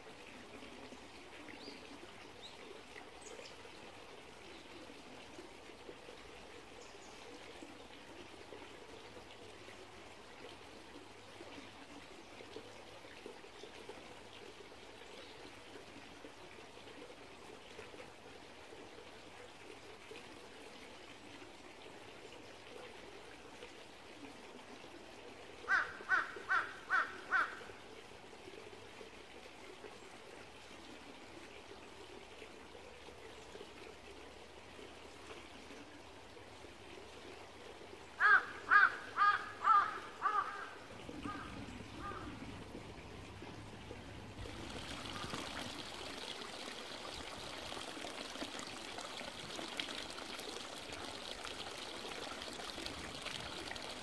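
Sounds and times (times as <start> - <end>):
stream trickling: 0.0 - 54.0
bird calling quickly: 25.7 - 27.6, 38.2 - 42.4.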